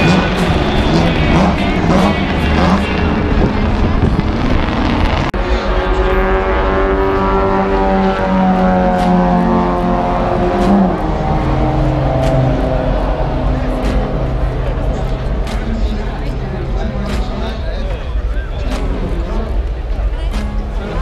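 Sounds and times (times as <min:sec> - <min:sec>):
noisy track sound: 0:00.0 - 0:21.0
racing car engine: 0:00.0 - 0:21.0.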